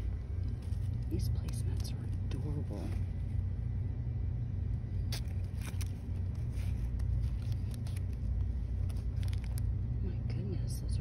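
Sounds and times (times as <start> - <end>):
hand rustling and patting placemats: 0.0 - 3.0
steady low hum: 0.0 - 11.0.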